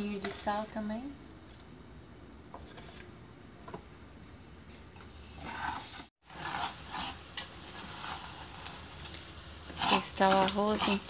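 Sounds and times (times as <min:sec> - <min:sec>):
rice frying: 0:04.9 - 0:11.0
spoon scraping metal pan: 0:05.4 - 0:08.8, 0:09.6 - 0:11.0.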